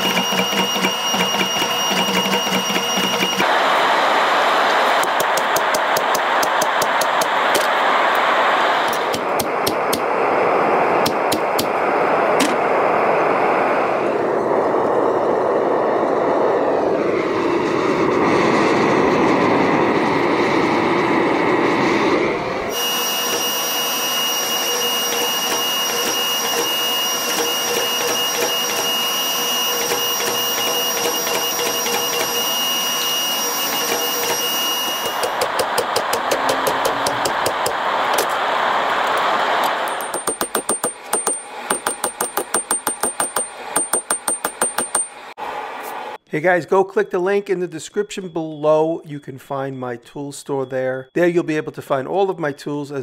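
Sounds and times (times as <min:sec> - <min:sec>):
power hammer running: 0:00.0 - 0:10.2, 0:22.7 - 0:45.4
gas forge burner rushing: 0:00.0 - 0:17.0, 0:20.0 - 0:46.2.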